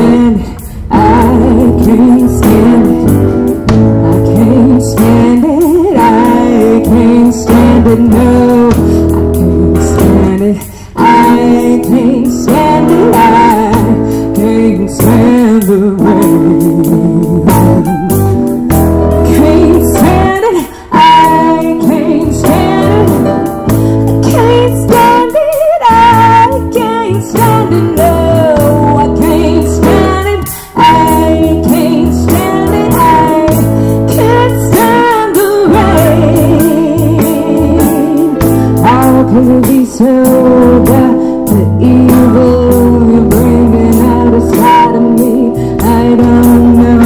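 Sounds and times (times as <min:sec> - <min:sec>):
bass guitar: 0:00.0 - 0:47.0
drum kit: 0:00.0 - 0:47.0
woman singing: 0:00.0 - 0:47.0.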